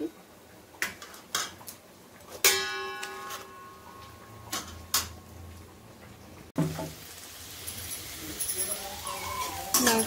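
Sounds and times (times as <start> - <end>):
metal pot clanging: 2.4 - 5.3, 7.7 - 10.0.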